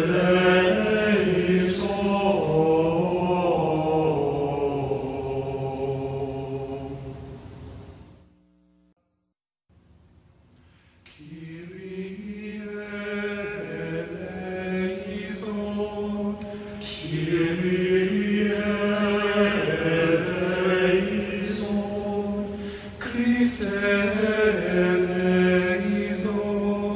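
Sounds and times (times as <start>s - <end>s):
voices chanting long notes: 0.0s - 7.5s, 11.1s - 26.9s.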